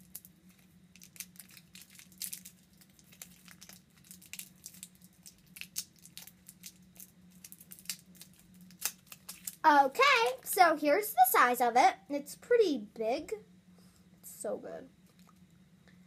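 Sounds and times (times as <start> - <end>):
plastic wrapper crinkling: 0.0 - 10.6
faint low hum: 0.0 - 16.0.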